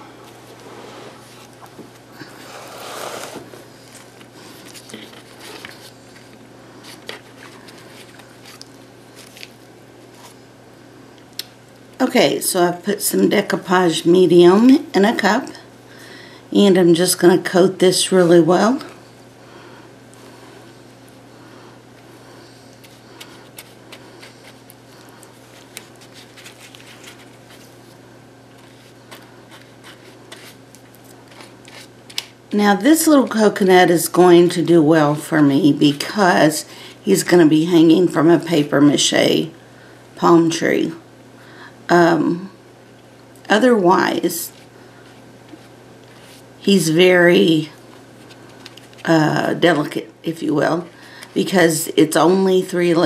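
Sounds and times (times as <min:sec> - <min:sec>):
steady low hum: 0:00.0 - 0:53.0
paper rustle: 0:03.0 - 0:10.4, 0:22.8 - 0:32.3.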